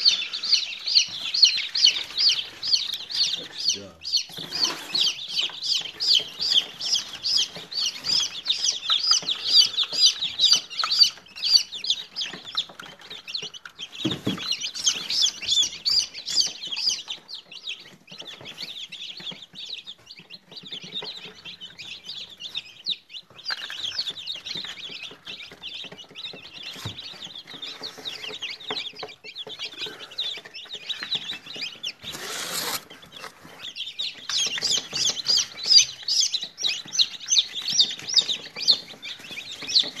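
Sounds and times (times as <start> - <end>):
chicks peeping: 0.0 - 40.0
rustling: 30.6 - 40.0.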